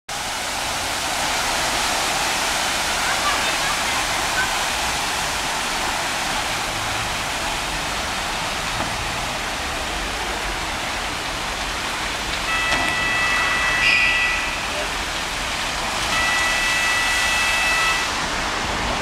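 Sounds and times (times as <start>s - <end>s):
water pouring into lock chamber: 11.1s - 19.0s
high steady whistling tone: 12.5s - 15.0s, 16.1s - 18.1s.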